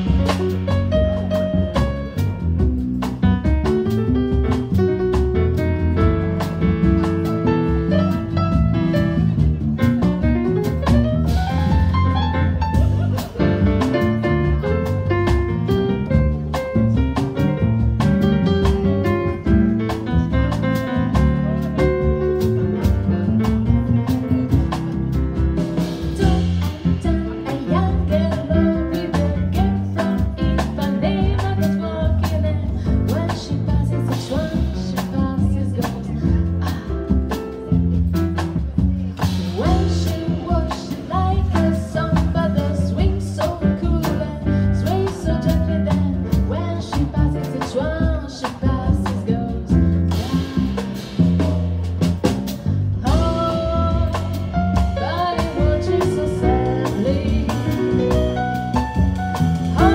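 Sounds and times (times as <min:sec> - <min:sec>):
jazz band playing bossa nova: 0:00.0 - 0:59.9
woman singing into a microphone: 0:26.2 - 0:37.1, 0:39.5 - 0:49.9, 0:53.0 - 0:58.1.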